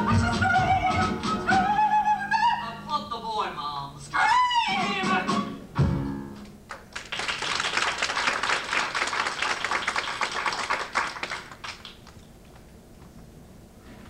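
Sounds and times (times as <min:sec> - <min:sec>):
audience applauding: 0:06.7 - 0:12.7.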